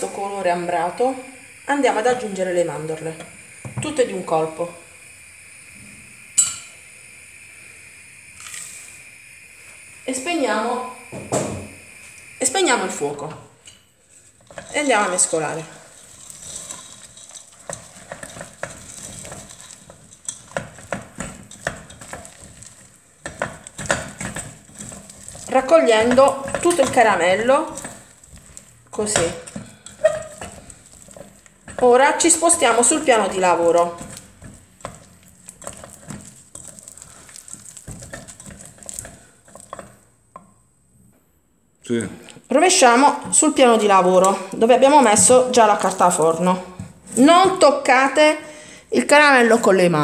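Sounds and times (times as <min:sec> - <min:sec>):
wooden spoon scraping pot: 0:12.8 - 0:40.5, 0:42.5 - 0:48.0.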